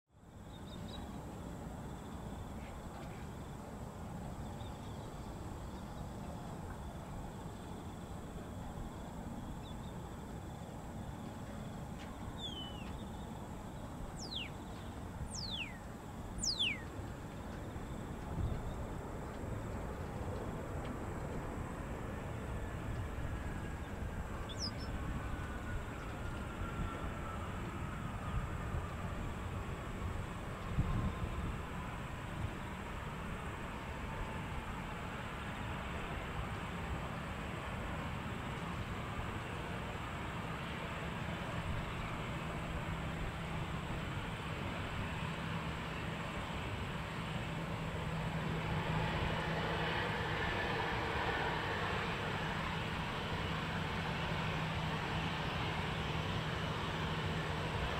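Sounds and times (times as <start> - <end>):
insects chirping: 0.2 - 36.8
distant jet engines rumbling: 0.3 - 57.9
bird chirps: 12.4 - 13.2, 14.2 - 16.9, 24.4 - 24.9.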